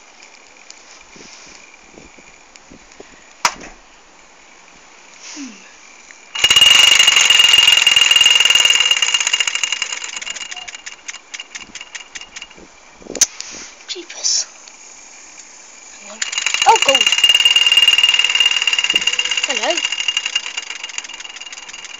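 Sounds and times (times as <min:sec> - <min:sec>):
toy steam engine chattering: 0:06.4 - 0:12.6, 0:16.0 - 0:21.9.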